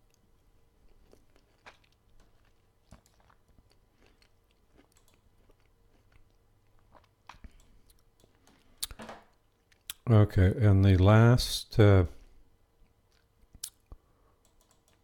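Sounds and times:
low room hum: 0.0 - 15.0
mouth clicks chewing: 13.1 - 15.0.

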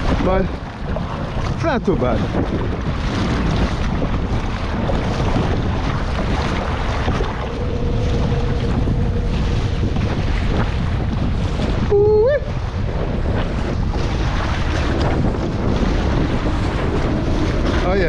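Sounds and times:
water splashing against kayak: 0.0 - 18.0
wind buffeting microphone: 0.0 - 18.0
short upward-bending tone: 7.1 - 12.4.

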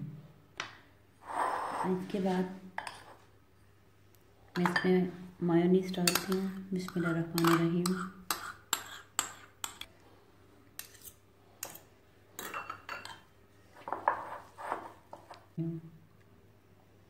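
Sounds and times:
metal spoon clinking on ceramic: 6.0 - 9.9, 12.4 - 13.3.

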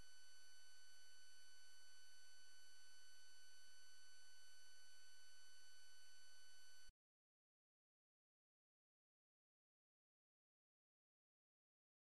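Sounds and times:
faint high-pitched whine: 0.0 - 6.9.

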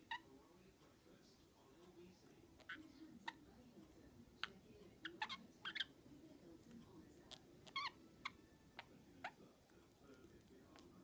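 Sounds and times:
budgerigars chirping: 4.4 - 6.0.

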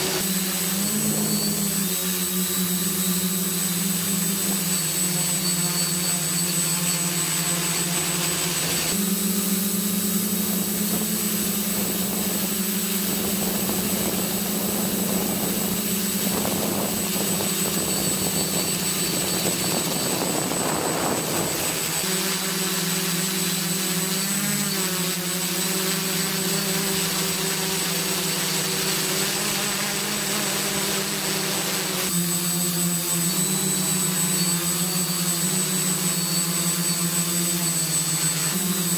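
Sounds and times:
drone propellers humming: 0.0 - 38.9.

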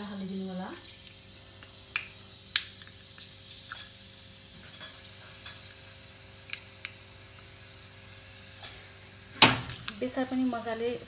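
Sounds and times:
seeds sizzling in hot oil: 0.0 - 11.0
sharp oil pops: 1.6 - 3.9.

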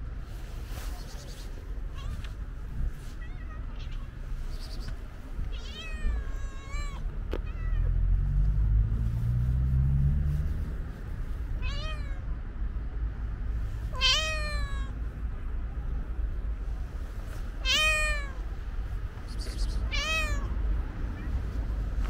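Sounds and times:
cat meowing: 1.9 - 2.4, 3.1 - 4.7, 5.5 - 8.1, 11.6 - 12.2, 13.9 - 15.0, 17.6 - 18.5, 19.5 - 20.5.

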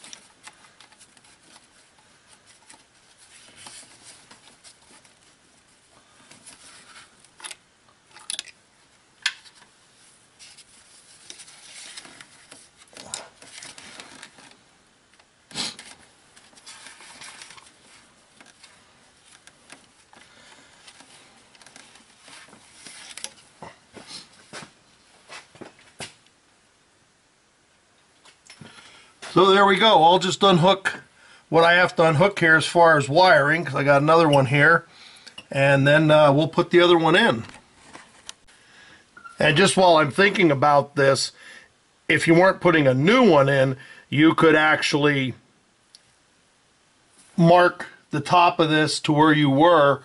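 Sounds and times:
gloved hands rustling: 0.0 - 26.2.

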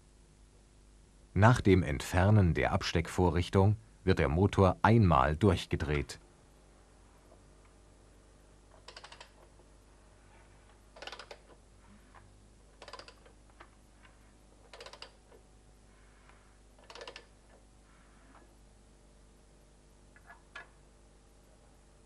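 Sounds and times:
faint rapid clicking: 8.7 - 9.5, 12.2 - 13.8, 14.7 - 15.4, 16.8 - 17.6.

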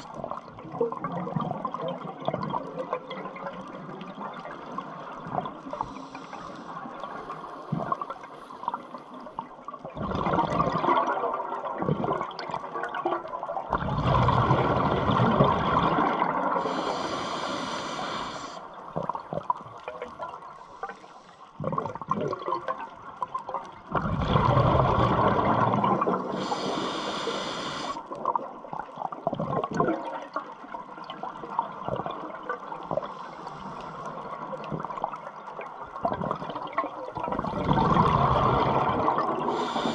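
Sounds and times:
exhaled air bubbling underwater: 0.0 - 39.9
regulator hissing on inhale: 5.8 - 9.1, 16.6 - 18.7, 26.3 - 28.1, 33.0 - 34.1, 39.4 - 39.9.

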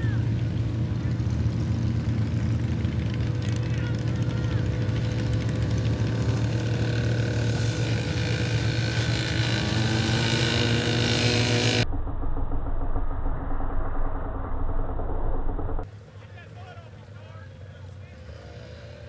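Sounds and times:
atv engines racing: 0.0 - 11.9, 15.8 - 19.0
dull engine drone: 0.0 - 16.2.

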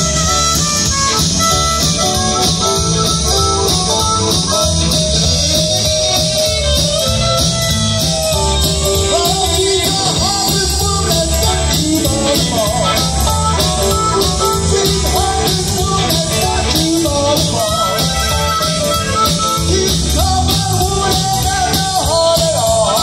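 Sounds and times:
live blues-rock band playing: 0.0 - 23.0
repeating bass line: 0.0 - 23.0.

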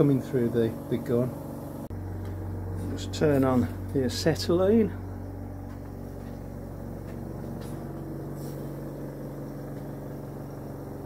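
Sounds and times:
compressor humming: 0.0 - 11.0
faint scuffs: 5.6 - 8.8.

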